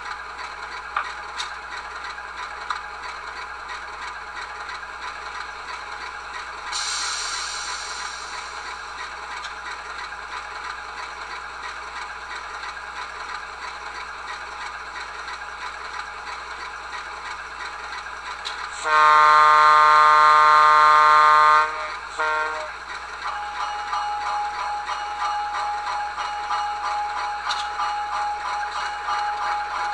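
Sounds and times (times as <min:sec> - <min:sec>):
locomotive horn: 0:18.7 - 0:22.8
rhythmic mechanical sound: 0:21.7 - 0:29.9.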